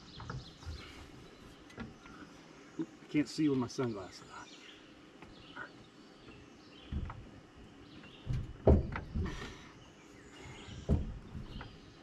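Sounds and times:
dull metal knocks and clunks: 0.0s - 0.9s, 6.2s - 9.7s, 10.4s - 12.0s.

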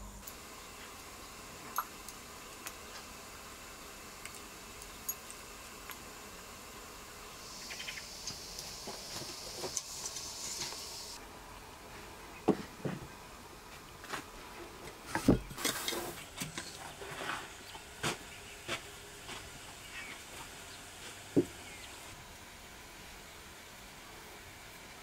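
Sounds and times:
faint high hiss: 0.0s - 25.0s.

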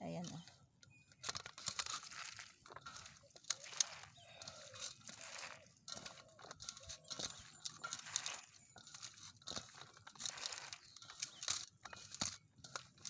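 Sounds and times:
hands kneading wet vegetables: 0.0s - 13.0s.

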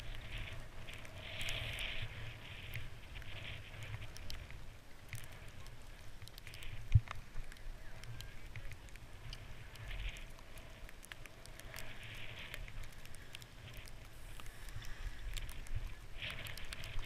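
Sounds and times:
skis scraping over snow: 0.0s - 17.0s.

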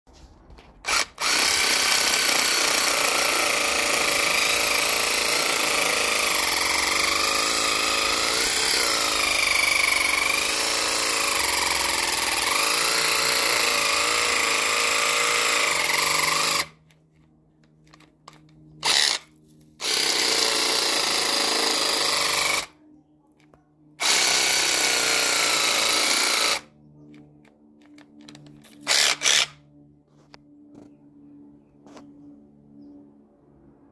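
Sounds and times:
reciprocating saw cutting wood: 0.7s - 16.8s, 18.3s - 22.7s, 24.0s - 26.6s, 28.6s - 29.6s.

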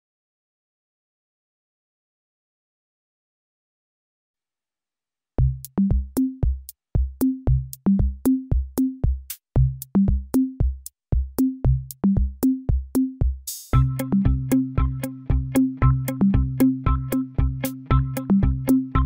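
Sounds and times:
low bass notes: 5.4s - 6.2s, 13.8s - 19.0s
drum-machine beat: 5.4s - 19.0s.

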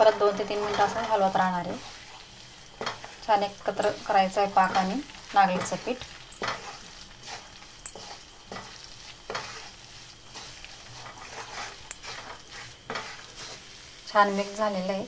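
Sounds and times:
wooden spatula scraping metal pan: 0.0s - 2.1s, 6.4s - 14.8s.

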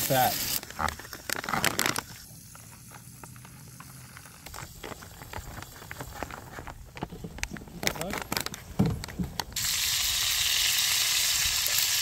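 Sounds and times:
foil pouch ripping: 0.0s - 10.5s
packaging crinkling: 0.2s - 9.7s.

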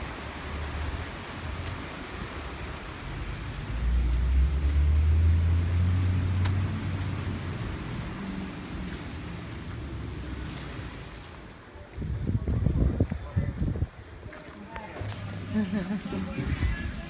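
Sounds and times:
steady outdoor noise: 0.0s - 17.0s
passing vehicle engine rumble: 2.4s - 11.5s, 14.8s - 17.0s.

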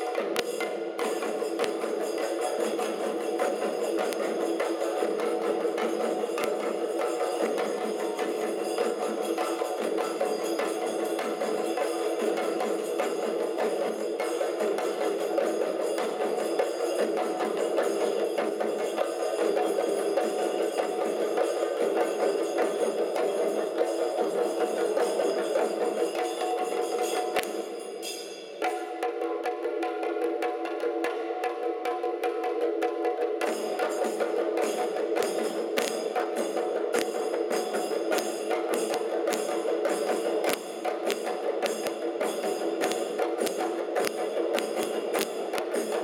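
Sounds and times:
drums beaten with sticks: 0.0s - 27.9s, 28.6s - 46.0s.

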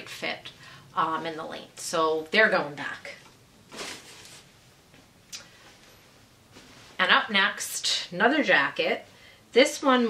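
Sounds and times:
faint clothes rustle: 3.1s - 7.6s.

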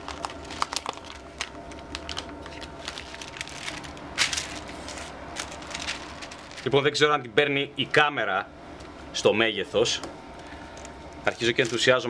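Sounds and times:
plastic bag crinkling: 0.0s - 6.8s, 11.2s - 12.0s
plastic rustle: 0.0s - 6.8s, 11.2s - 12.0s
knife slitting plastic bag: 2.5s - 6.8s, 11.3s - 12.0s.

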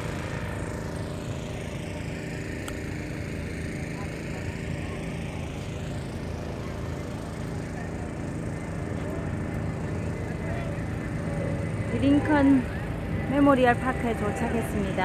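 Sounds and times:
faint voices: 1.4s - 15.0s.

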